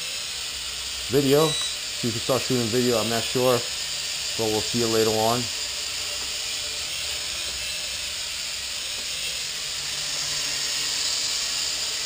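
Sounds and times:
quadcopter propellers whirring: 0.0 - 12.0.

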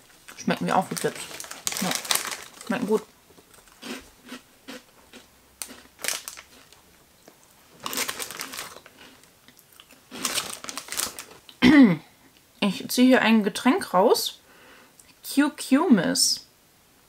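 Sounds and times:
snack bag rustling: 0.2 - 11.5
snack crunching: 1.2 - 11.6.

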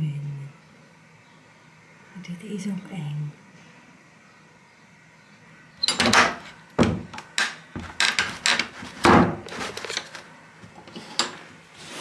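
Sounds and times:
wooden door banging and rattling: 5.8 - 9.5.

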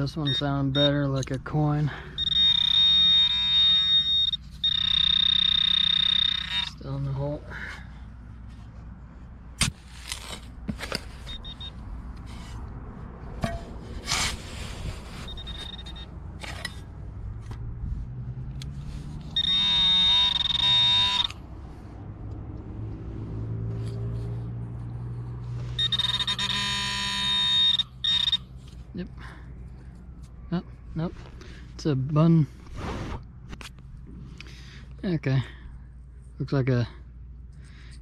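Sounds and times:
metal detector warbling tone: 2.2 - 6.9, 15.2 - 16.1, 19.4 - 21.4, 25.8 - 28.4
shovel scraping sand and pebbles: 9.6 - 11.3, 13.6 - 15.7.

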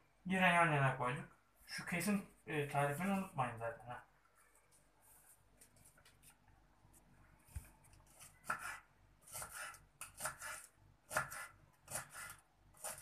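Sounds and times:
knife slicing on wooden board: 8.1 - 13.0.

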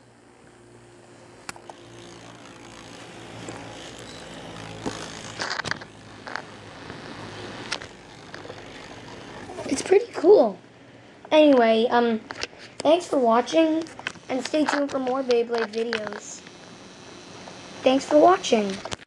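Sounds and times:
spinning top scraping and knocking: 0.0 - 10.4, 11.4 - 19.0
spinning top whirring: 0.0 - 10.6, 11.3 - 19.0
click: 1.4 - 1.8.

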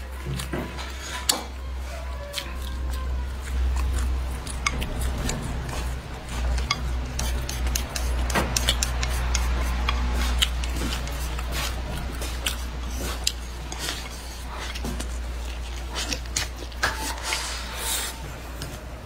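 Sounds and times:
chewing and lip smacks: 0.0 - 18.8
steady low hum: 0.0 - 19.0
chopsticks clicking on a plate: 6.6 - 11.6.

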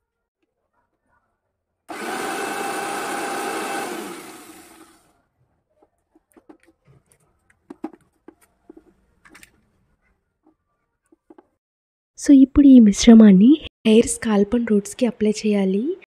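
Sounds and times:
mixer grinder motor whirring: 1.9 - 5.1.

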